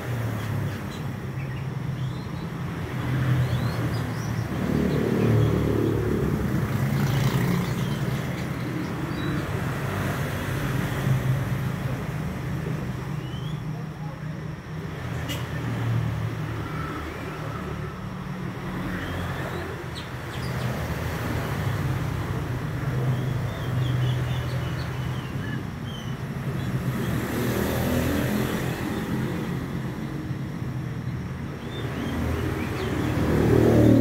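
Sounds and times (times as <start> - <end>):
bird chirps: 13.1 - 13.7, 18.9 - 20.8, 22.9 - 27.2, 31.6 - 33.4.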